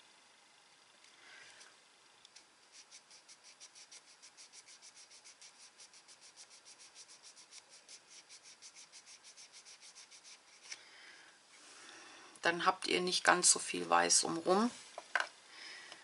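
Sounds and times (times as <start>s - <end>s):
fingertips rubbing on card: 2.6s - 10.8s.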